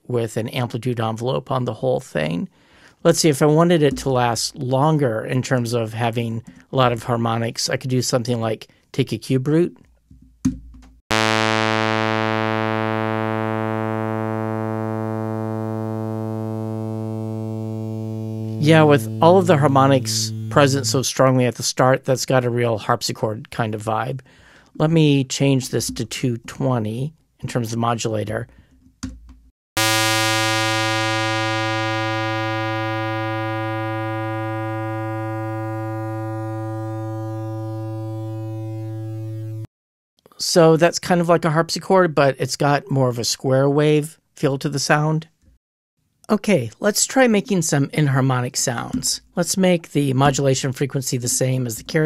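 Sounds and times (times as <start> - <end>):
bright buzzy synthesized tone: 11.1 - 21.0, 29.8 - 39.7.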